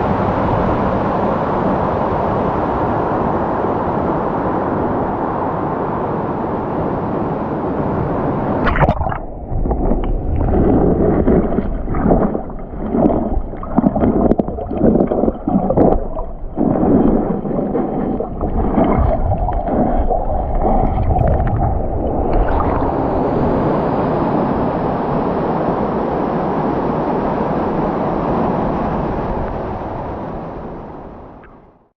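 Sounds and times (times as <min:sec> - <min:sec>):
underwater sloshing and gurgling: 0:08.3 - 0:26.3.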